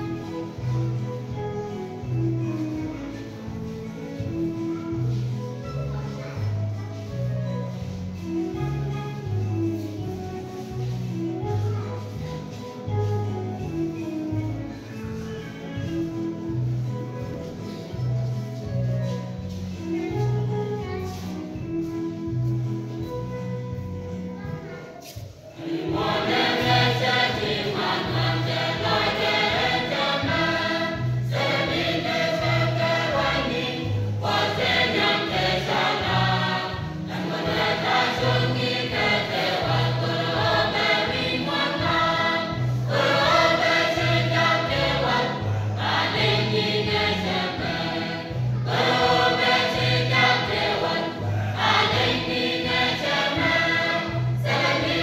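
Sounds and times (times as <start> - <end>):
church choir singing: 25.5 - 55.0.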